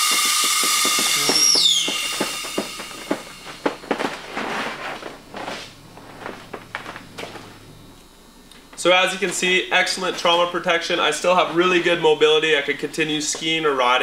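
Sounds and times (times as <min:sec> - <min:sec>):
airbag inflating with whistling rush: 0:00.0 - 0:05.2.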